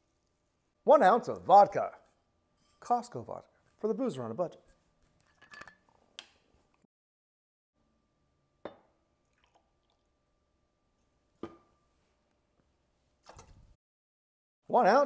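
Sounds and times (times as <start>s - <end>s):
glass and metal clinks: 5.3s - 5.8s
liquid pouring from glass bottle: 9.2s - 10.2s.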